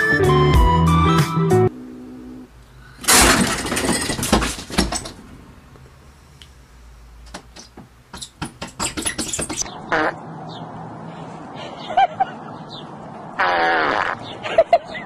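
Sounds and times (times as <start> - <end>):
cat crashing into window: 3.0 - 5.1
sharp taps and knocks: 7.3 - 9.7.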